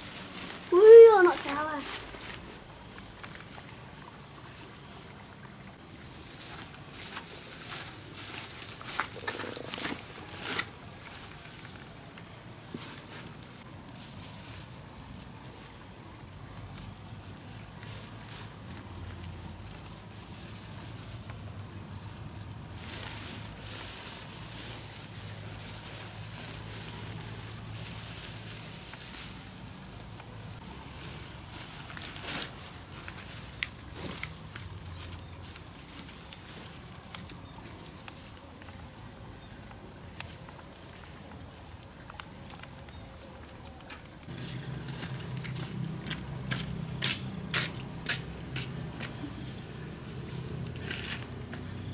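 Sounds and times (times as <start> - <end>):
dry straw rustling and crackling: 0.0 - 38.8
insects droning: 0.0 - 51.9.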